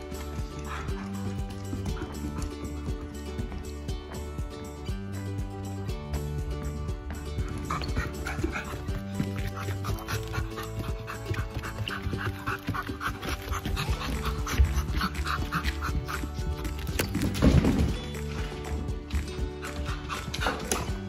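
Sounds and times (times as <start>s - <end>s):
background music: 0.0s - 21.0s
puppy panting: 0.2s - 2.5s, 7.6s - 17.3s, 19.5s - 21.0s.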